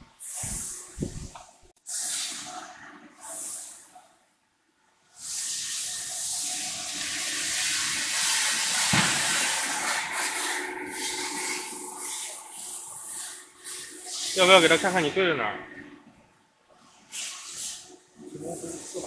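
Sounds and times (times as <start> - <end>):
machine airy hiss: 0.2 - 3.9, 5.2 - 15.8.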